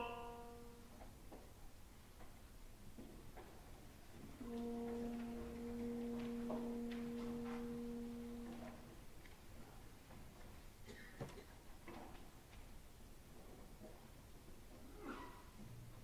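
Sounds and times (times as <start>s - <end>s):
orchestra holding a note: 4.4s - 8.9s.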